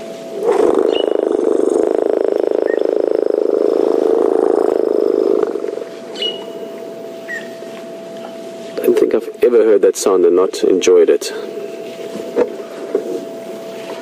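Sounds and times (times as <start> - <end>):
elephant rumbling: 0.0 - 7.8.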